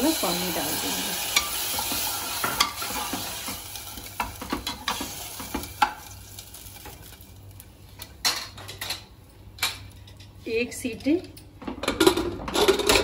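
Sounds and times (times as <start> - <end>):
masala sizzling in oil: 0.0 - 8.3.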